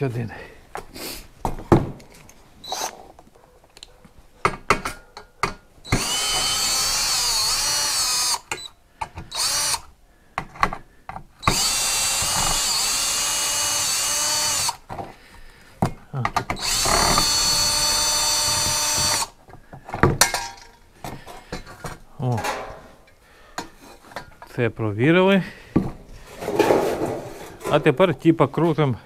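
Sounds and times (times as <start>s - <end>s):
cordless drill whining: 2.6s - 3.0s, 5.8s - 9.9s, 11.4s - 14.8s, 16.5s - 19.4s.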